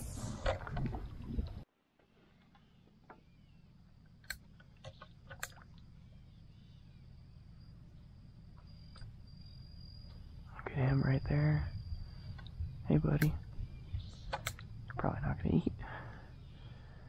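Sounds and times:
sharp clicks: 0:04.1 - 0:05.8, 0:12.3 - 0:15.0.

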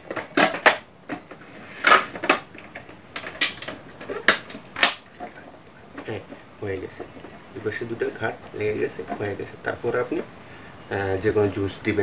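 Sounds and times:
plastic clips snapping shut: 0:01.8 - 0:05.1.

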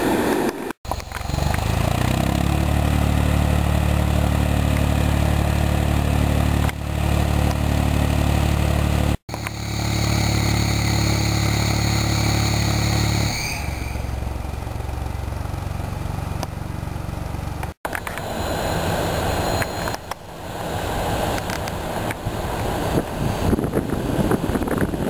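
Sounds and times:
diesel engine idling: 0:00.9 - 0:23.3
faint high whine: 0:09.3 - 0:15.4, 0:17.9 - 0:23.8.

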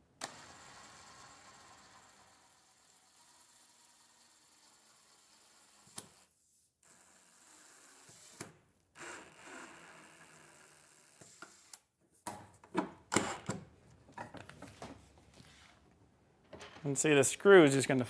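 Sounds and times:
cordless drill driving a screw: 0:00.2 - 0:11.8.

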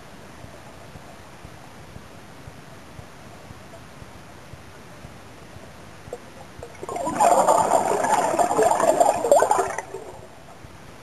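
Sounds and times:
diver's breath bubbling: 0:06.1 - 0:10.3.

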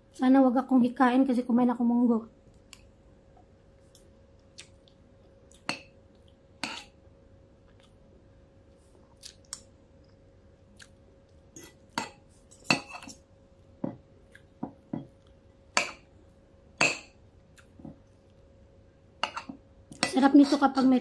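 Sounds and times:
cutlery clinking on a plate: 0:11.6 - 0:13.2, 0:19.2 - 0:20.6.

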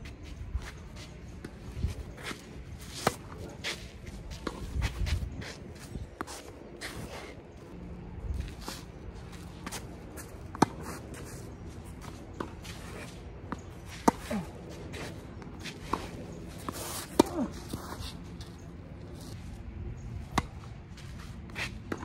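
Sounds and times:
tennis ball bouncing: 0:13.5 - 0:14.3, 0:16.6 - 0:17.8, 0:20.3 - 0:20.6
tennis ball struck by rackets: 0:16.7 - 0:17.6, 0:20.3 - 0:20.6.

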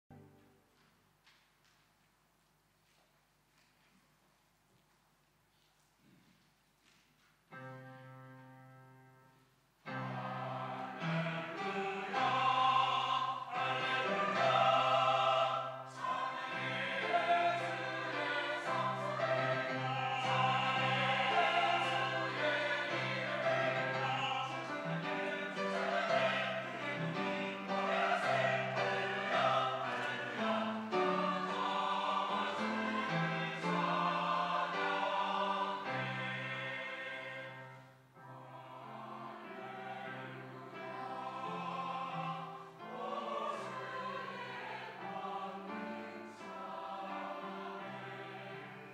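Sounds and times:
mixed choir singing: 0:09.9 - 0:48.9.

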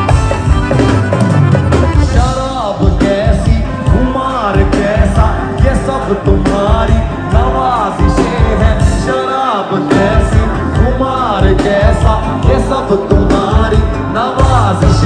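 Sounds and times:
steady drum beat: 0:00.0 - 0:15.0
song with singing: 0:02.0 - 0:15.0.

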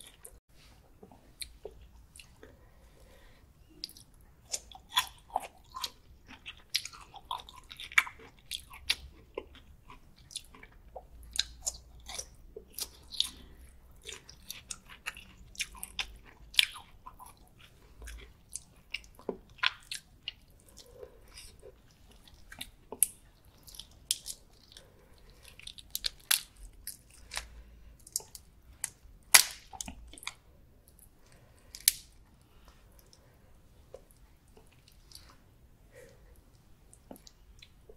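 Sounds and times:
chewing and biting prawns: 0:03.7 - 0:30.5.

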